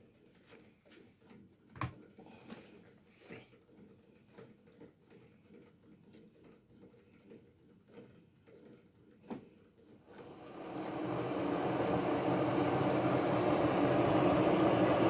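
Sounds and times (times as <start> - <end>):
kettle ticks and creaks: 0.0 - 10.0.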